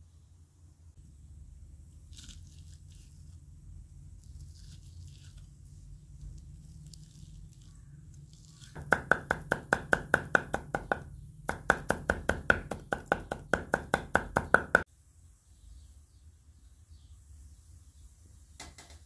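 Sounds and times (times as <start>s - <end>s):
knife chopping on wooden board: 8.8s - 14.8s.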